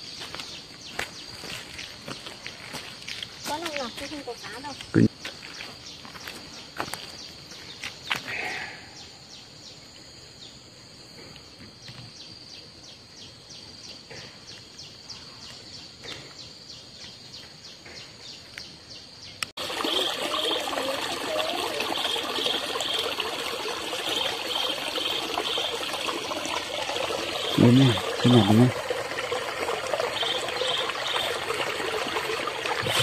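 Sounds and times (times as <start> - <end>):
high insect drone: 19.9 - 33.0.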